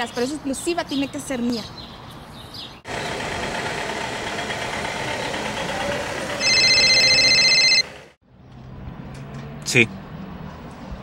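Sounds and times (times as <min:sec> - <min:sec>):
mobile phone ringtone: 0:06.4 - 0:07.9.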